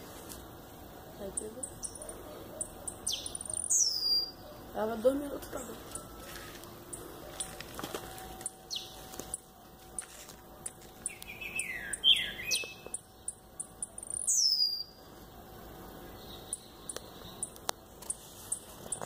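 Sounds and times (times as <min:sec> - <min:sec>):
bird short high ticks: 0:16.5 - 0:18.2.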